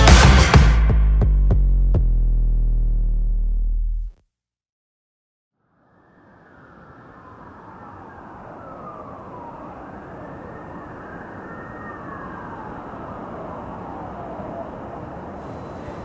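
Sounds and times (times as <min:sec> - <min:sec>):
city traffic rumble: 0:05.6 - 0:16.0
distant siren wailing: 0:05.6 - 0:16.0.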